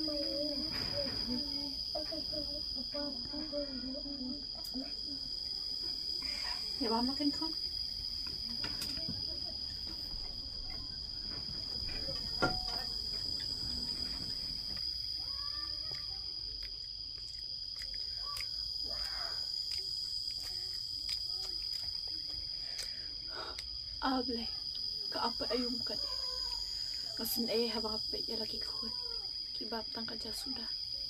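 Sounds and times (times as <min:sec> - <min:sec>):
crickets trilling: 0:00.0 - 0:31.0.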